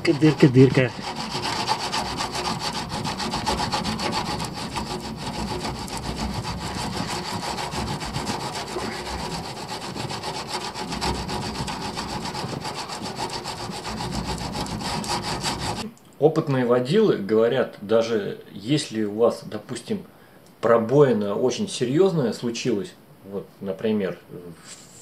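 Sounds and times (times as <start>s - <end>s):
soap scraping on metal tank: 0.0s - 15.8s.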